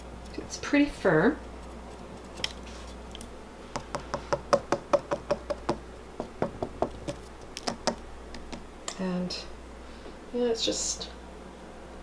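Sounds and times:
fingers tapping on baked clay: 3.7s - 8.6s.

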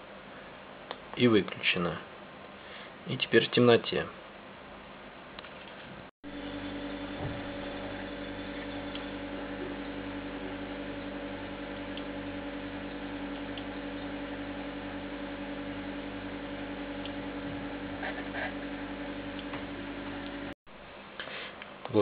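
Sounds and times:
inverter humming: 6.2s - 22.0s.

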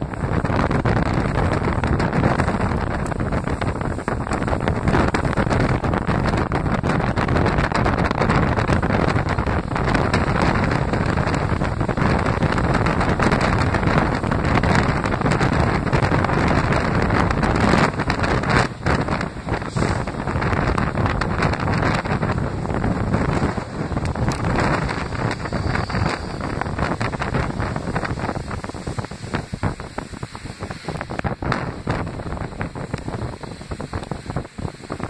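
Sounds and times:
moving train running noise: 0.0s - 35.0s
wind on microphone: 0.0s - 35.0s.

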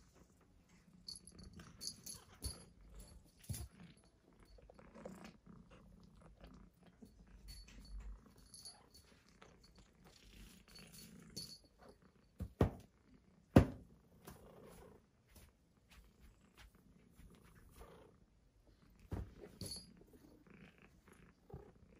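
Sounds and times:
cat toy rustling and ticking: 0.0s - 12.6s.

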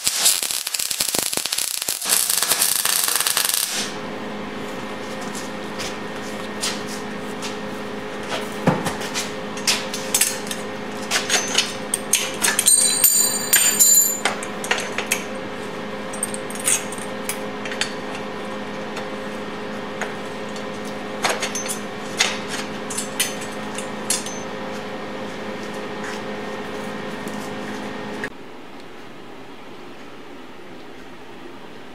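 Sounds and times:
steady hum: 2.0s - 31.9s
metal clinks and knocks: 12.4s - 14.3s.

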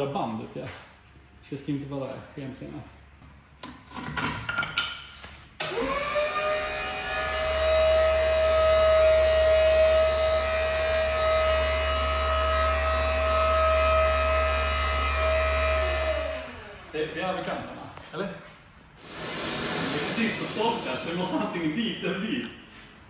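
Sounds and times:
electric hoist motor whining: 5.6s - 17.1s.

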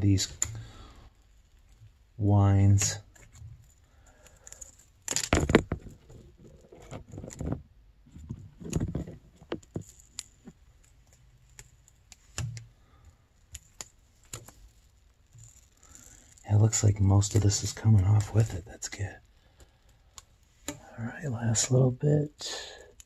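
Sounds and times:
strip peeling rustles: 5.7s - 18.6s.

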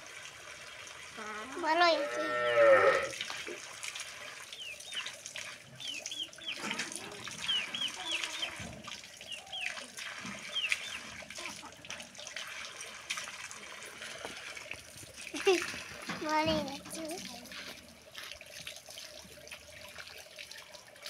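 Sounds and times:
birds chirping: 4.5s - 8.6s, 9.2s - 9.8s, 10.4s - 11.2s.

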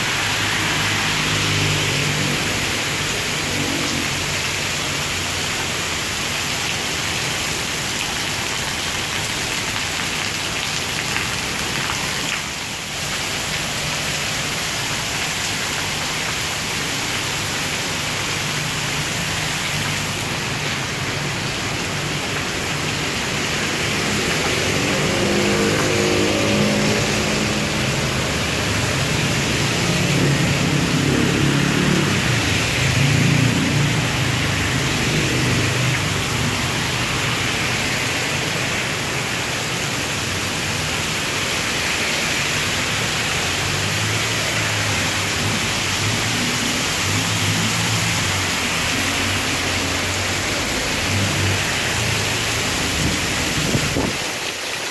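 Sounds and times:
heavy rain pouring on street: 0.0s - 54.9s
passing vehicle engine hum: 23.4s - 38.5s.

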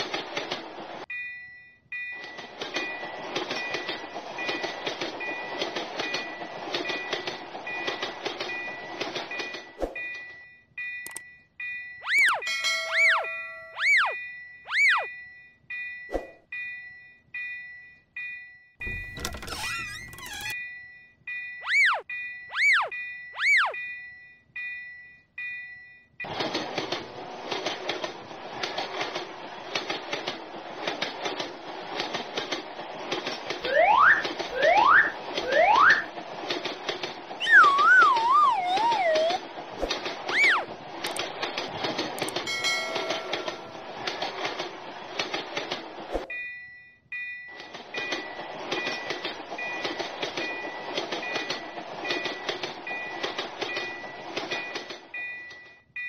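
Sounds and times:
crossing warning bell ringing: 1.1s - 19.2s, 42.3s - 44.6s, 46.3s - 56.0s
cartoon train wheel clicks: 2.1s - 10.4s, 11.0s - 11.3s, 18.8s - 20.6s, 26.2s - 46.4s, 47.5s - 55.9s
rising whistle-like glides: 37.4s - 39.4s.

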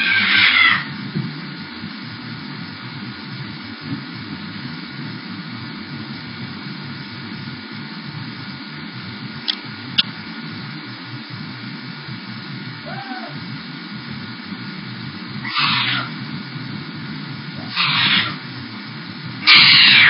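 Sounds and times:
room tone hiss and hum: 0.0s - 20.0s
sharp clicks: 9.4s - 10.2s.

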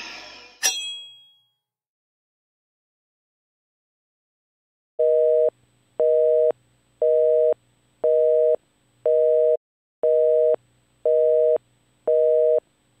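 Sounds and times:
telephone busy signal beeps: 5.0s - 12.6s.

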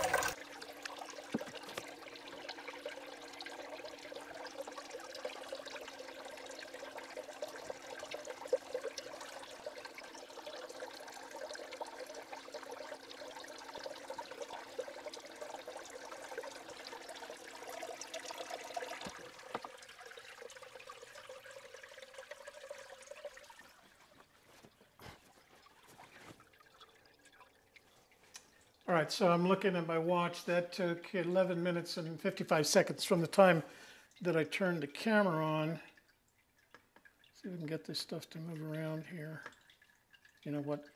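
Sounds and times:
pump motor hum: 0.0s - 27.5s
water pouring and swirling: 0.0s - 28.9s
faint water trickle: 0.0s - 40.9s.

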